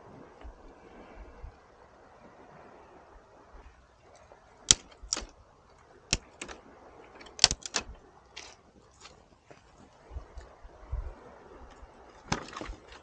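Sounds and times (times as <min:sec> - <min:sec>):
cooking gear clicking and clinking: 0:04.7 - 0:05.3, 0:06.1 - 0:09.2.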